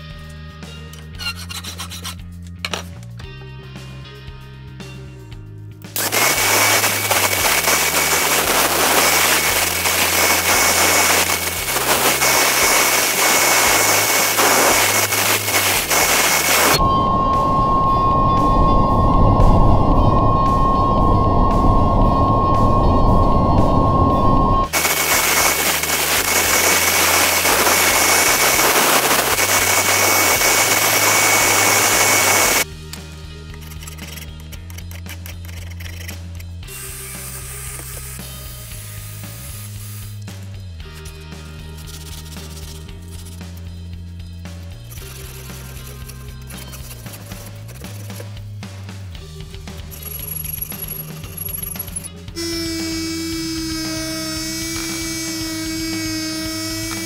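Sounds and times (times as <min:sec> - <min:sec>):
grinder grinding steel: 0:01.0 - 0:02.2, 0:06.0 - 0:32.7, 0:51.4 - 0:57.0
power tool running: 0:06.0 - 0:32.7, 0:36.7 - 0:40.2, 0:51.8 - 0:57.0.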